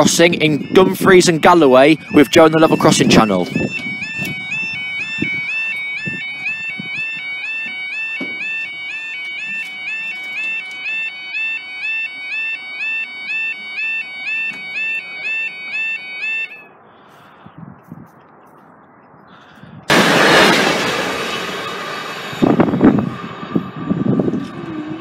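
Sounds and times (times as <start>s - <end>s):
two-tone electronic warble alarm: 0.0s - 16.7s.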